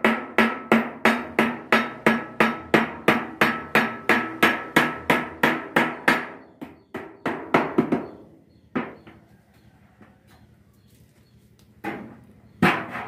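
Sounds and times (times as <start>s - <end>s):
hammer striking sheet metal: 0.0s - 8.1s, 11.9s - 13.0s.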